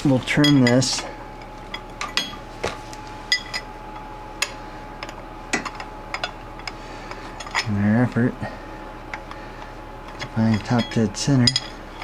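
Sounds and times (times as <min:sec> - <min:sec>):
faint steady hum: 0:00.0 - 0:12.0
hand tools clinking on metal: 0:00.3 - 0:01.1, 0:10.2 - 0:11.8.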